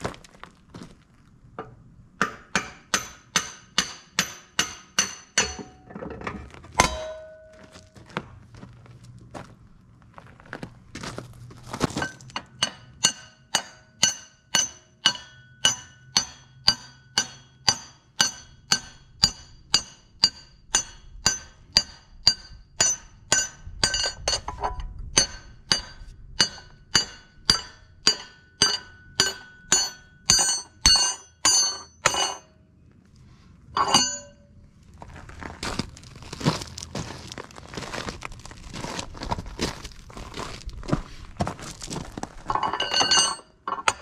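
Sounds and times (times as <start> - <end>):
hammer striking metal punch: 1.6 - 7.9, 12.4 - 32.5, 33.8 - 34.5.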